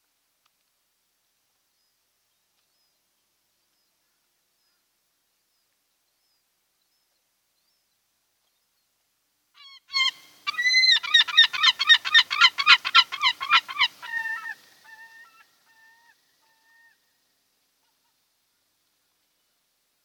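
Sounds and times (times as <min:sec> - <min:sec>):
osprey chirping calls: 0:09.6 - 0:16.1.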